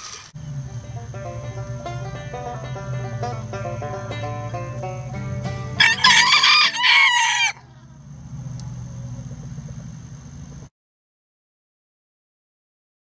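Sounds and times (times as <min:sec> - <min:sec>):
plucked-string music: 0:00.0 - 0:07.8
rooster crowing: 0:00.4 - 0:08.1.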